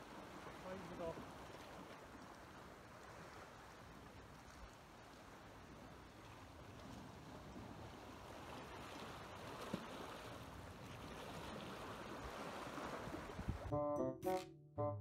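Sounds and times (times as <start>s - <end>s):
sea water lapping: 0.0s - 13.7s
wind: 0.0s - 14.4s
music with clear notes: 13.7s - 15.0s.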